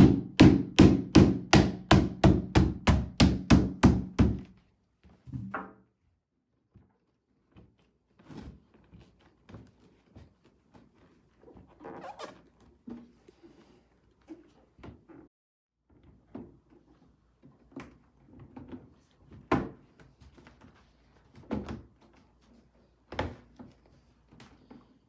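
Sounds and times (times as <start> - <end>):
rubber mallet striking plastic: 0.0 - 4.5.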